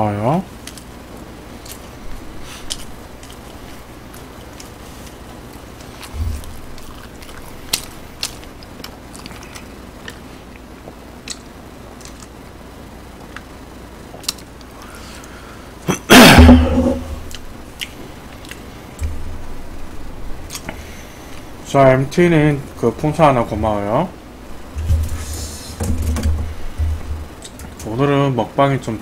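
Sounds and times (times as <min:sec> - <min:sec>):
throat sound falling in pitch: 0:15.9 - 0:17.2.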